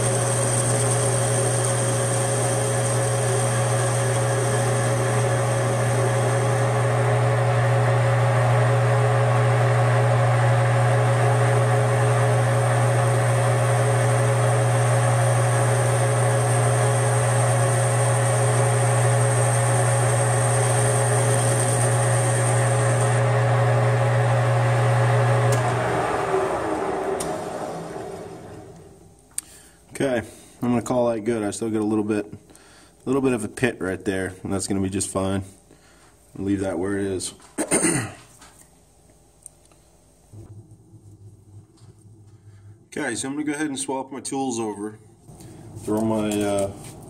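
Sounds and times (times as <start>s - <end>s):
metal lathe humming: 0.0s - 29.0s
thin high whine: 40.3s - 47.0s.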